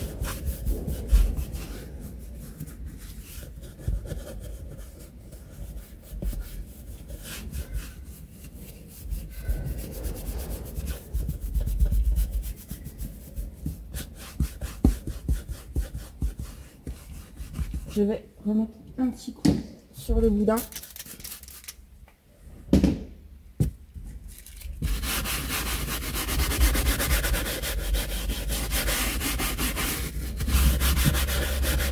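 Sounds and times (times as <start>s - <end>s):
brush scrubbing leather: 0.0s - 18.1s, 24.8s - 31.9s.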